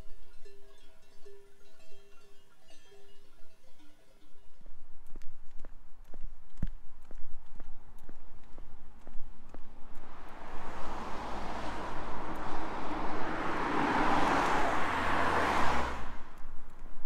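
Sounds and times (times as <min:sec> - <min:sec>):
car driving past: 0:09.0 - 0:16.8.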